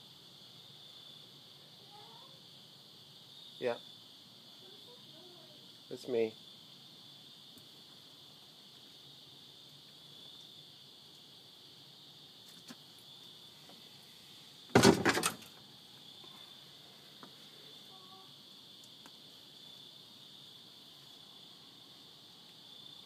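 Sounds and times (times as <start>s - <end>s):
crickets chirring: 0.0s - 23.0s
loud clatter of knocks: 14.7s - 15.5s.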